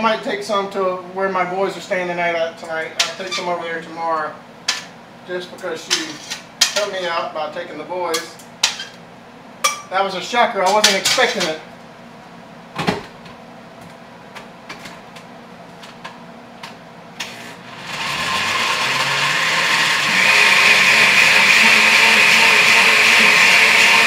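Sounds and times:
blender motor whining: 17.2s - 24.0s.

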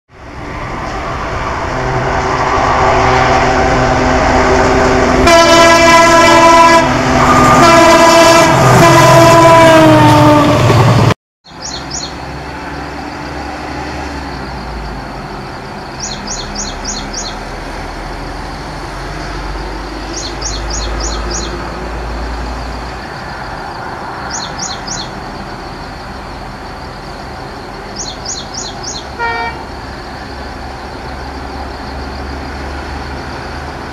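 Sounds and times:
diesel locomotive engine: 0.1s - 33.9s
train horn blasts: 1.7s - 10.7s, 29.0s - 29.7s
bird chirping: 11.5s - 12.7s, 15.8s - 17.5s, 19.8s - 21.6s, 24.2s - 25.8s, 27.6s - 29.2s.

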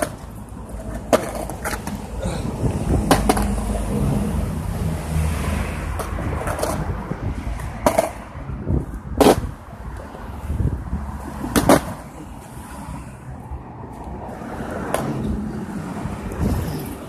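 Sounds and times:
skateboard wheels clacking on joints: 0.0s - 3.8s, 5.9s - 9.6s, 11.4s - 12.2s
skateboard rolling on concrete: 0.0s - 17.0s.

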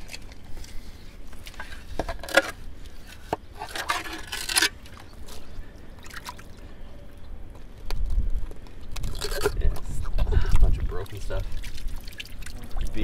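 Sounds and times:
muddy water sloshing: 1.4s - 6.8s, 9.0s - 13.0s.

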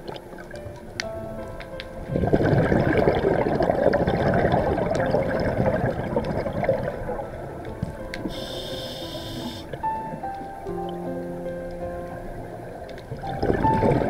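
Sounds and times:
underwater air bubbling: 0.0s - 14.0s
short hiss: 8.3s - 9.7s.

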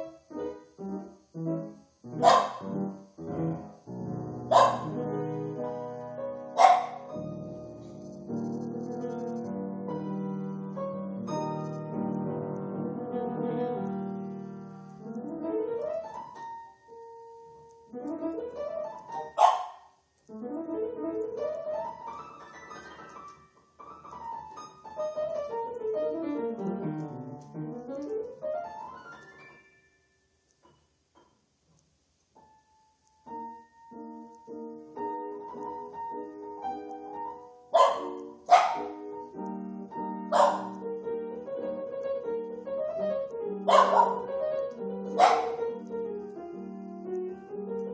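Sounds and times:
grand piano improvising: 0.0s - 31.4s, 32.4s - 47.9s
dog barking: 2.1s - 2.8s, 4.4s - 5.1s, 6.5s - 7.1s, 19.2s - 20.0s, 37.7s - 39.0s, 40.2s - 40.8s, 43.7s - 44.4s, 45.0s - 45.8s.

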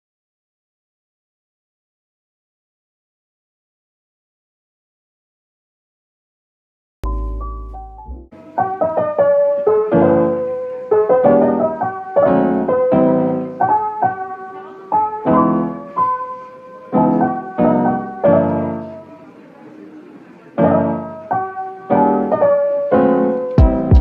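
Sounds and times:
slow piano chords: 7.0s - 24.0s.

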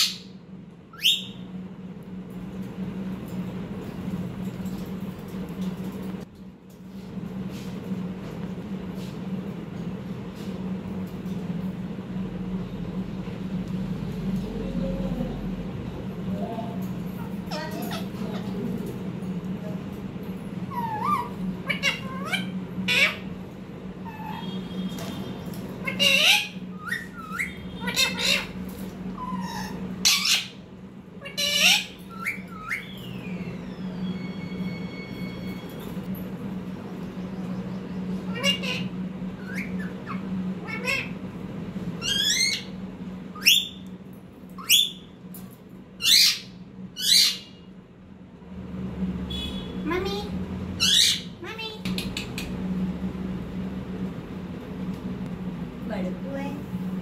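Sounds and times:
low machine hum: 0.0s - 57.0s
parakeet squawking: 17.4s - 18.6s, 20.7s - 23.4s, 25.8s - 30.6s, 31.2s - 34.0s, 38.2s - 41.2s, 42.0s - 43.8s, 46.0s - 47.6s, 50.8s - 51.8s.

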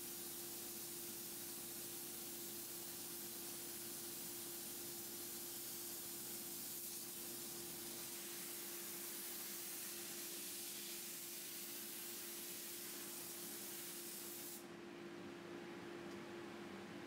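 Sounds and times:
air nozzle hissing: 6.6s - 14.6s.

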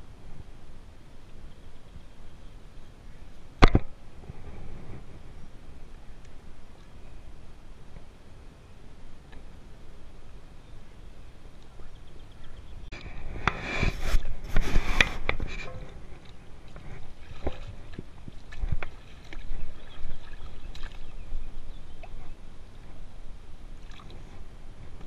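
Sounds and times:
water splashing and sloshing: 12.9s - 23.0s, 23.6s - 25.0s.

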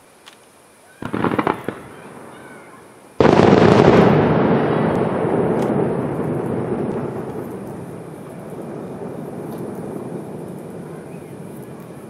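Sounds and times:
firework boom: 1.0s - 12.0s
rumbling echo: 1.1s - 12.0s.

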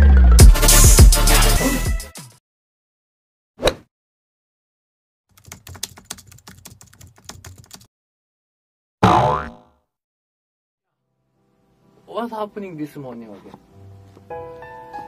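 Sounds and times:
brief swish: 3.6s - 3.9s.

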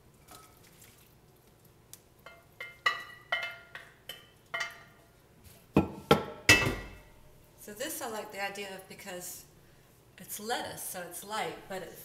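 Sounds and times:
metal skillet knocking on bowl: 2.3s - 5.0s.

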